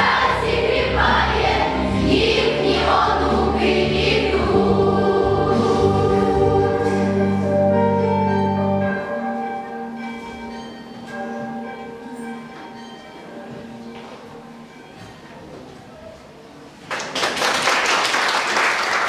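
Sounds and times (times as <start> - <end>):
girls' choir singing: 0.0 - 7.9
instrumental accompaniment: 0.0 - 16.1.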